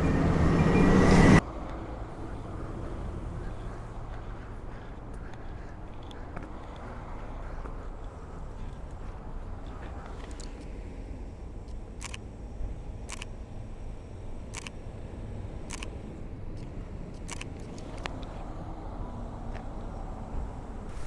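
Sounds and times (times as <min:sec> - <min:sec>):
camera shutter clicks: 0:11.6 - 0:12.3, 0:13.0 - 0:13.4, 0:14.4 - 0:14.8, 0:15.6 - 0:16.0, 0:16.6 - 0:18.3.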